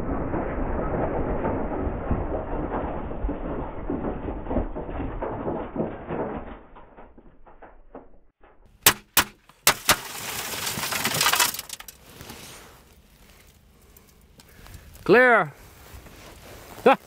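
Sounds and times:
glass crumbling and showering down: 0.0 - 7.9, 9.8 - 12.1.

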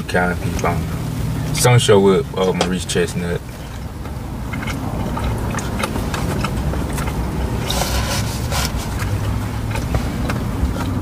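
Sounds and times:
low rumble in car cabin: 0.0 - 11.0
chewing and eating: 3.5 - 11.0.

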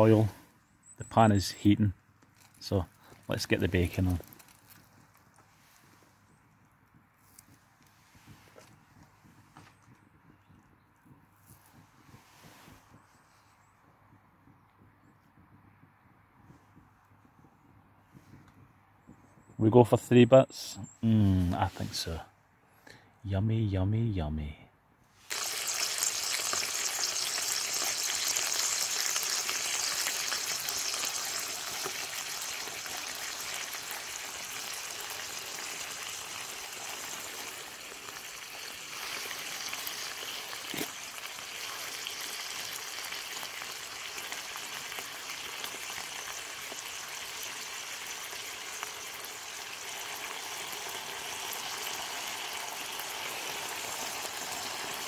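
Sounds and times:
bacon sizzling in a frying pan: 25.2 - 55.0.

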